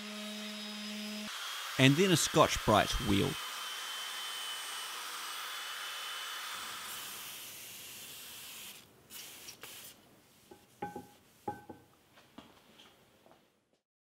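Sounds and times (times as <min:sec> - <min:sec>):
aerosol spray hissing: 0:08.4 - 0:10.0.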